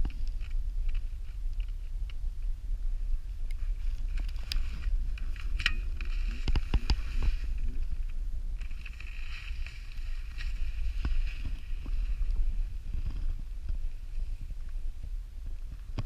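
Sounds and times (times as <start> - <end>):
wind buffeting microphone: 0.0 - 16.0
skis sliding on snow: 3.6 - 8.0, 8.6 - 13.0.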